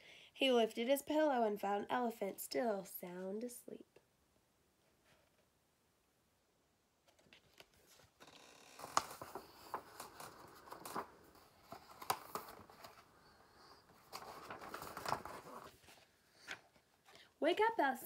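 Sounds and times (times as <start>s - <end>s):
paper rustling and crinkling: 7.0s - 17.1s.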